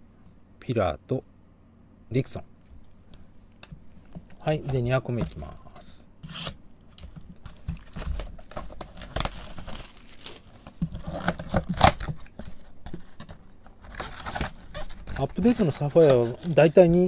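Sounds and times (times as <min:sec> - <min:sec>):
cardboard flap scraping: 0:07.4 - 0:17.0
plastic wrap crinkling and tearing: 0:07.5 - 0:12.4, 0:13.8 - 0:17.0
box cutter slitting plastic: 0:07.8 - 0:12.3.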